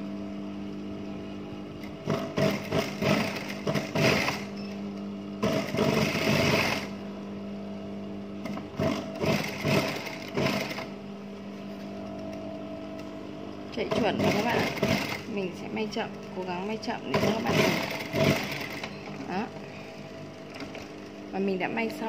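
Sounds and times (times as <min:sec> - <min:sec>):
steady machine hum: 0:00.0 - 0:22.0
sewing machine stitching: 0:02.0 - 0:04.5, 0:05.4 - 0:06.9, 0:08.4 - 0:10.9, 0:13.9 - 0:15.3, 0:17.1 - 0:19.0.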